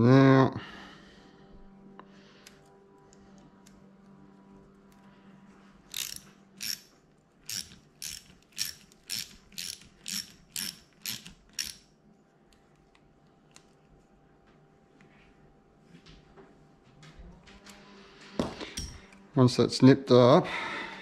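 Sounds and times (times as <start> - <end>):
hand ratchet clicking: 5.9 - 11.9.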